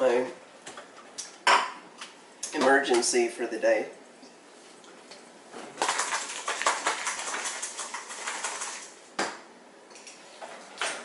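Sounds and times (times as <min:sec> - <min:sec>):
rapid irregular clicks and rattles: 0:05.8 - 0:08.9.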